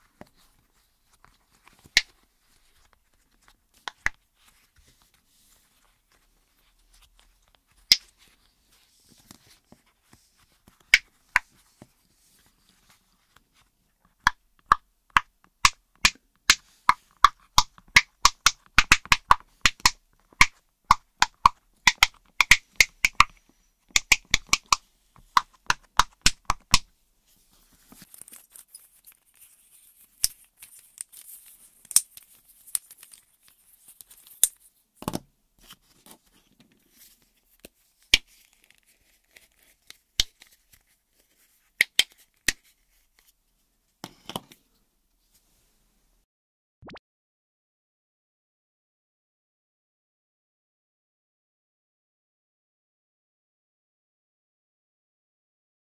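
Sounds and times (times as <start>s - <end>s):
handling plastic toys: 23.9s - 43.4s.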